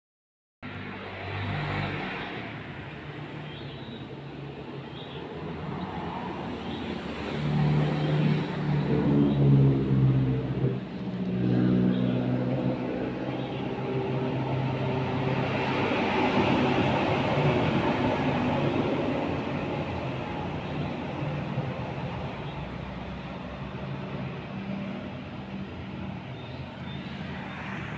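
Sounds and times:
broad rushing noise: 0:05.4 - 0:27.9
vehicle engine passing: 0:06.0 - 0:27.9.

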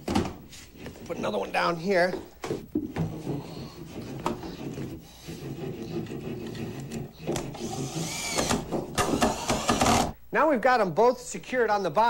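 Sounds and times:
drill driving screw into wood: 0:07.3 - 0:10.2.

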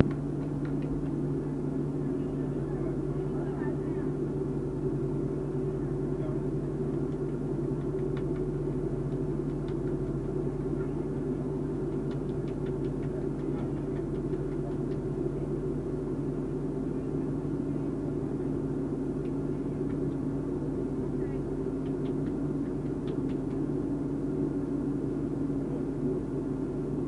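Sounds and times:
vehicle engine humming: 0:00.0 - 0:27.0
faint ticks and clicks: 0:11.9 - 0:15.0.

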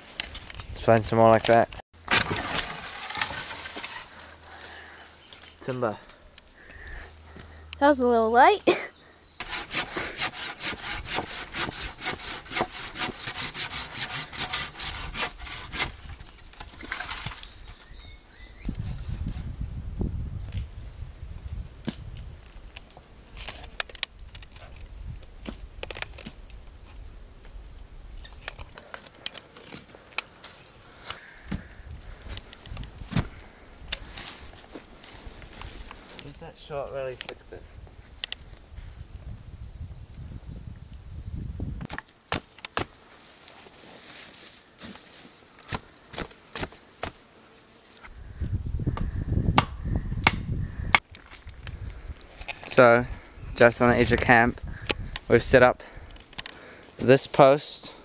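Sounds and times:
dry sticks snapping and crackling: 0:01.4 - 0:06.5, 0:41.9 - 0:47.2, 0:49.6 - 0:52.7, 0:56.0 - 0:56.6
footsteps through undergrowth: 0:32.1 - 0:36.4, 0:42.0 - 0:48.1.

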